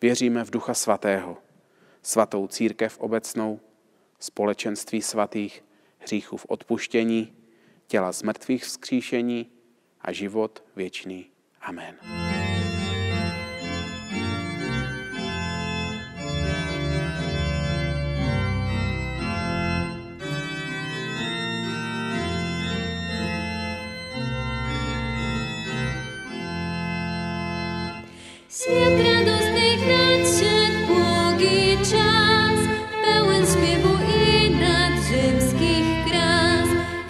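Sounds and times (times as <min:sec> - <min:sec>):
church organ chords: 0:12.0 - 0:37.0
violin: 0:28.5 - 0:37.0
woman singing: 0:28.5 - 0:37.0.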